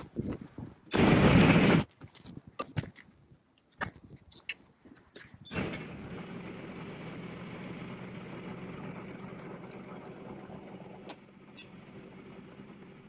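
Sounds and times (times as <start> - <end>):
engine idling: 5.5 - 13.0.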